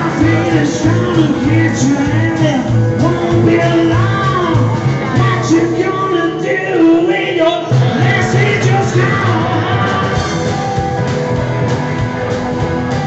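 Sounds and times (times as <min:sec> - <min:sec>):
rockabilly band playing: 0:00.0 - 0:13.0
upright bass walking line: 0:00.0 - 0:13.0.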